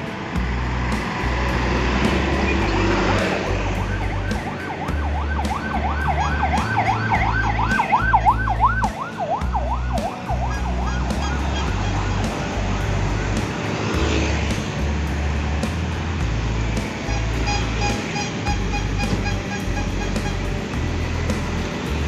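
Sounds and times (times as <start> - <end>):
music with bass line: 0.0 - 22.0
road traffic hum: 0.0 - 22.0
electronic yelp siren: 3.8 - 12.1.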